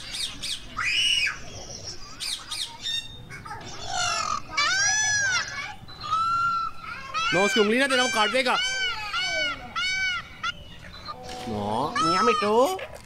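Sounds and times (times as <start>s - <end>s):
parakeets squawking: 0.0s - 13.0s.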